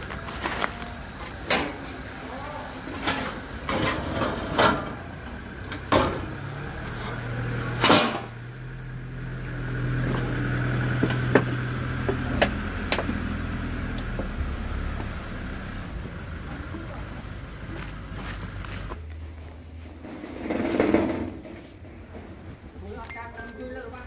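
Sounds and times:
leaves brushing: 0:14.8 - 0:20.6.

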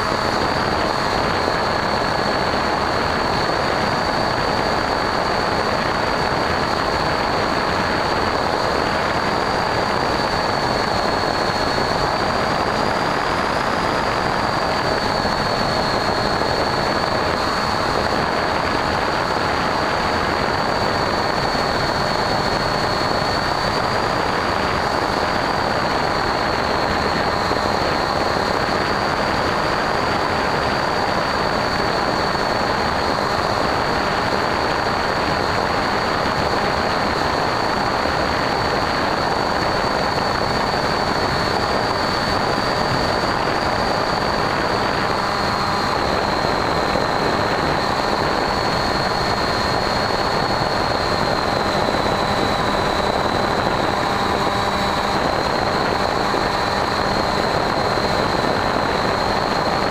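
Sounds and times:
electric motor whine: 0:00.0 - 0:59.9.

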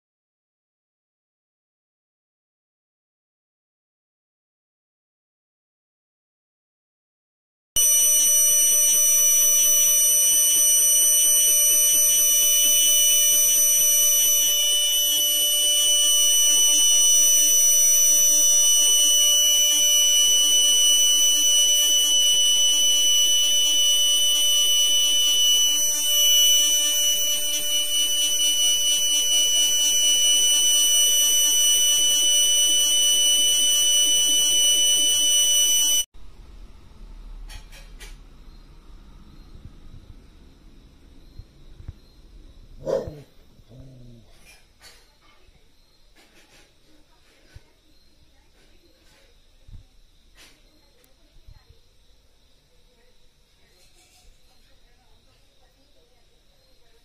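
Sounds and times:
cicada shrill calling: 0:07.8 - 0:36.0.

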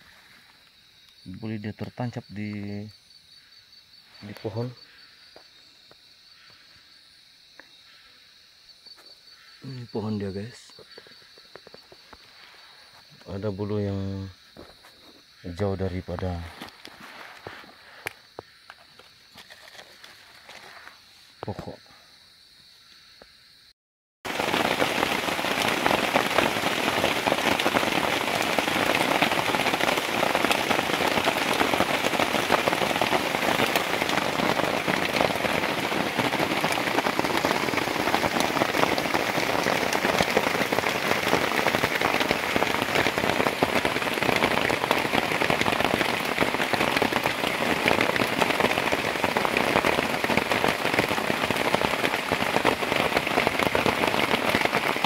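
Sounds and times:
heavy rain: 0:24.3 - 0:55.0.

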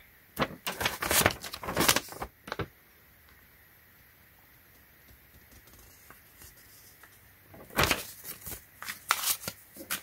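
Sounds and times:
paper rustling and crackling: 0:00.4 - 0:02.7, 0:05.5 - 0:10.0.

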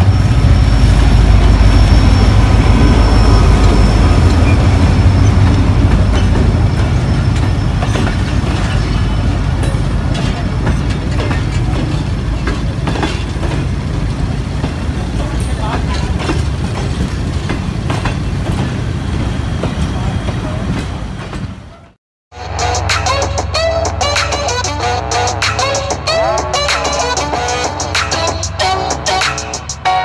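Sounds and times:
locomotive rumble: 0:00.0 - 0:30.0
train wheels clicking over rail joints: 0:03.5 - 0:21.9.

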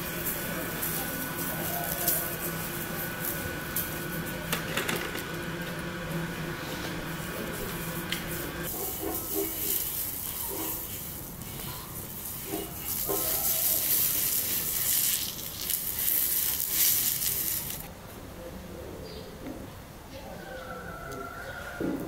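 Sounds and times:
fish sizzling on griddle: 0:00.0 - 0:05.6, 0:06.4 - 0:17.9.

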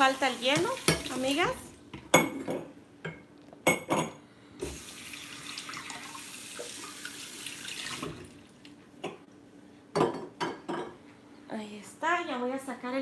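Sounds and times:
water running from tap: 0:00.0 - 0:01.6, 0:04.6 - 0:08.5.

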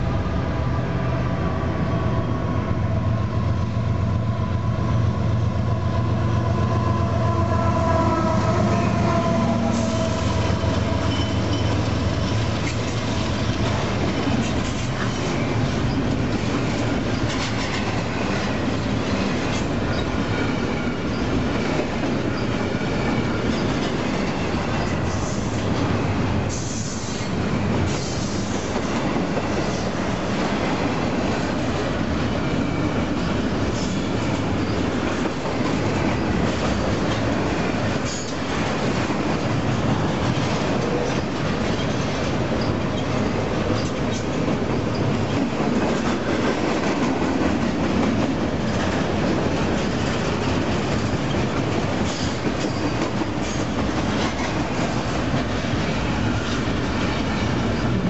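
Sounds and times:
diesel locomotive engine drone: 0:00.0 - 0:58.0
wheel squeals: 0:09.7 - 0:12.4.

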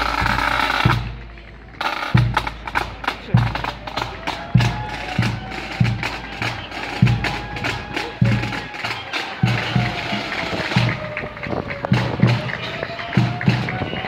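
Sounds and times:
snare drum strokes: 0:00.0 - 0:01.2, 0:01.8 - 0:13.9.

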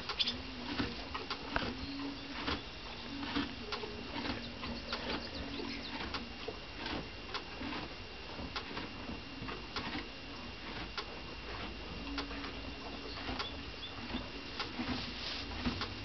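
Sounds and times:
low cooing calls: 0:00.0 - 0:06.4, 0:12.0 - 0:14.5
horse munching hay: 0:00.0 - 0:16.0.

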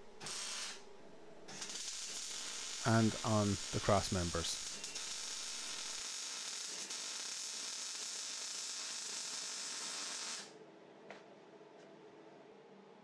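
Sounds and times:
welding arc sizzling: 0:00.2 - 0:00.8, 0:01.5 - 0:10.5.

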